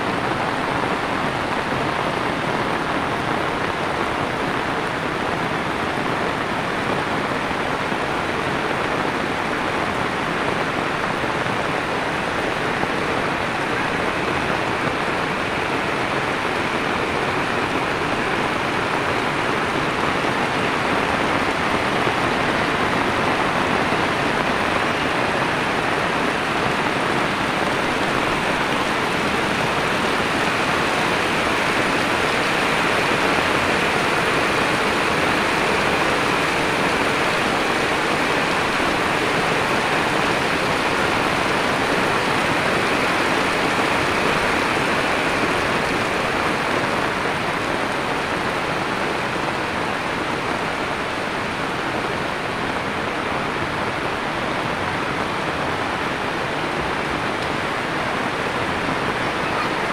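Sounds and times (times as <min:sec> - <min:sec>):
heavy rain on pavement: 0:00.0 - 0:59.9.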